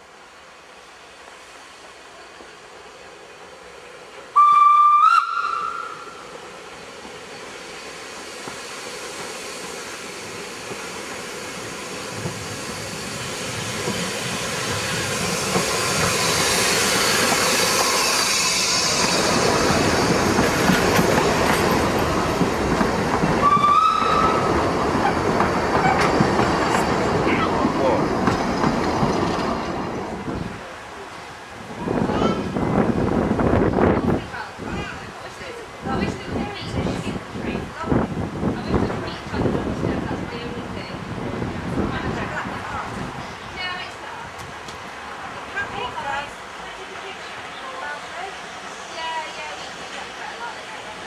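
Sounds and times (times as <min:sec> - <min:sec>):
steam locomotive running: 0:00.0 - 0:51.0
steam locomotive whistle: 0:04.3 - 0:06.3, 0:23.4 - 0:24.5.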